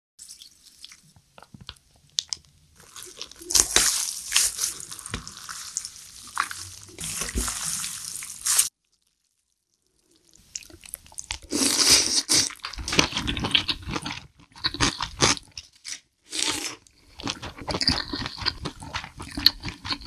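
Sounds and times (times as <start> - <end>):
chopsticks stirring noodles in sauce: 2.8 - 8.7.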